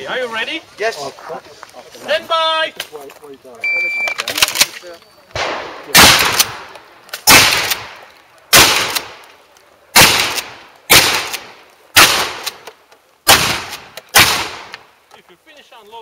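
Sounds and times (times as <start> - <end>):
ringing gunshot echo: 5.4 - 6.7
shotgun firing: 5.4 - 9.2, 10.0 - 12.6, 13.3 - 14.8.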